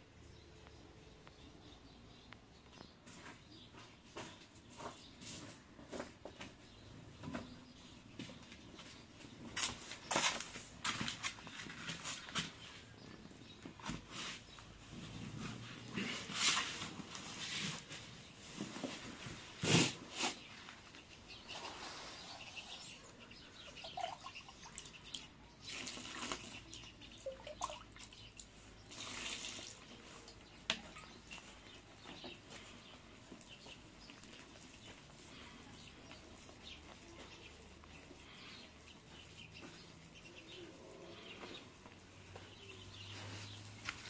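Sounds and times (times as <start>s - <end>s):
water pouring into flour: 28.9s - 29.8s.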